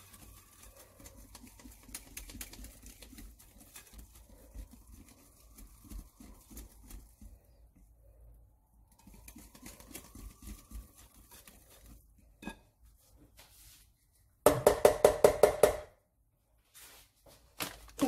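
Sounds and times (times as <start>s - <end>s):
whisk stirring batter: 0.0s - 14.2s.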